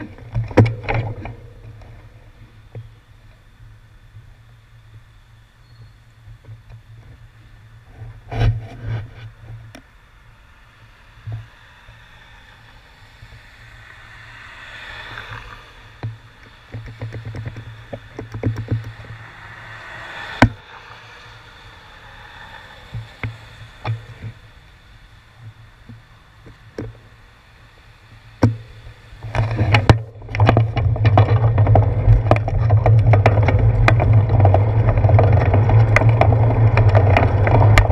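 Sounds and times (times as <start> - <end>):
car tyres hissing on wet road: 8.8 - 30.4.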